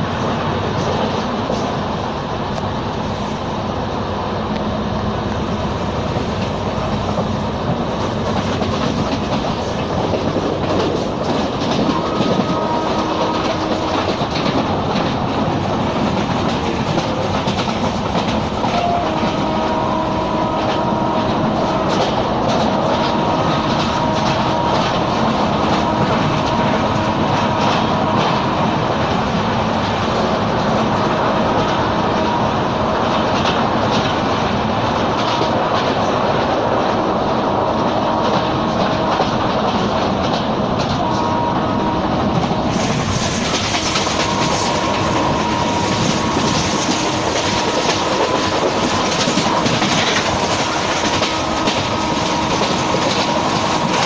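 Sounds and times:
train rumble and rush: 0.0 - 54.0
wheels clacking over rail joints: 6.1 - 32.4, 42.2 - 54.0.

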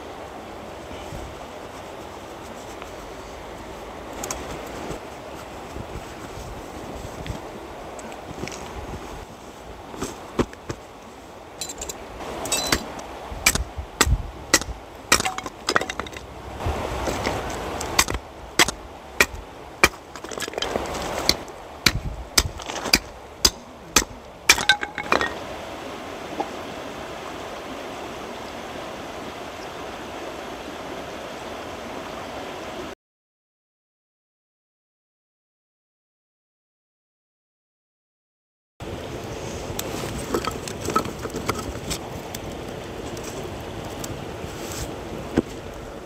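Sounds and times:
hard objects clicking and clinking: 24.5 - 25.4.

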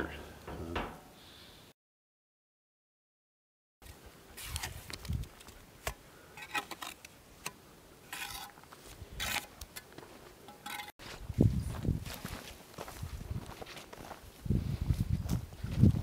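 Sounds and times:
trowel scraping and tapping mortar: 6.4 - 8.6, 9.2 - 9.9, 10.5 - 11.0.

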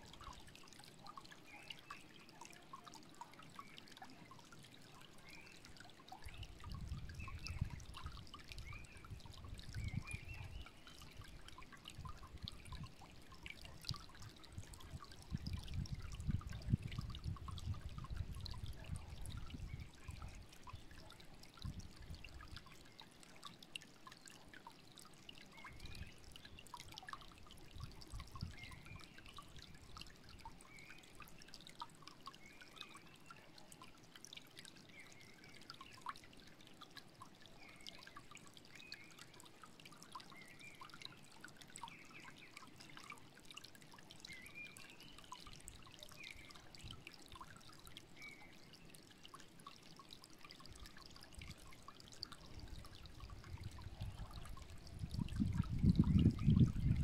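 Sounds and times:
stream trickling over stones: 0.0 - 57.0
small birds chirping: 0.2 - 14.5, 27.8 - 34.0.

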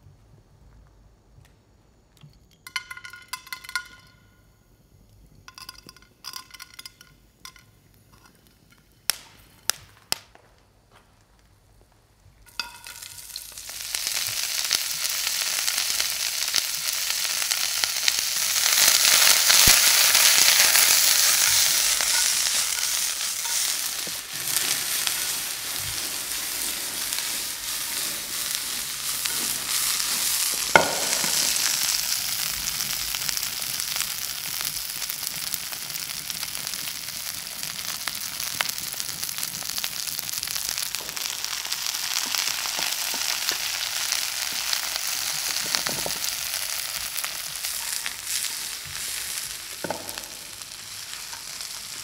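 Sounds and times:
food sizzling in hot pan: 12.4 - 52.0.

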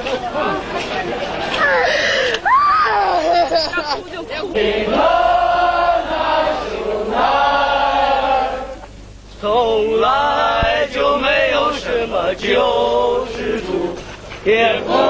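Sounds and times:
crowd chanting in unison: 4.5 - 8.7, 10.1 - 15.0.

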